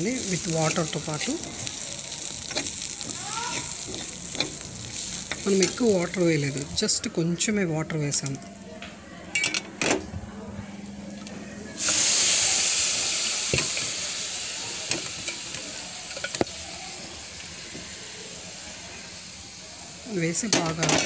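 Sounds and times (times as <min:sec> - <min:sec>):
loud sizzle in a pan: 0:00.0 - 0:07.1, 0:11.8 - 0:21.0.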